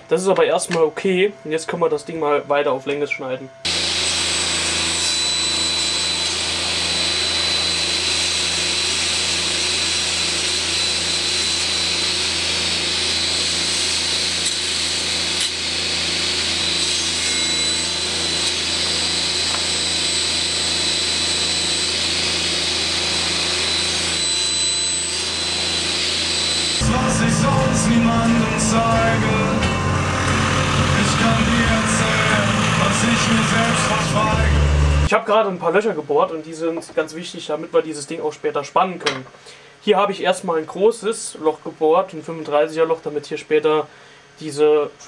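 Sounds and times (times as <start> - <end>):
table saw whining: 3.6 - 35.1.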